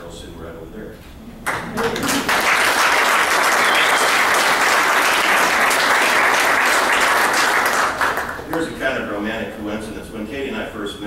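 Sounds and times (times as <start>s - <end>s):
audience applauding: 1.4s - 8.7s.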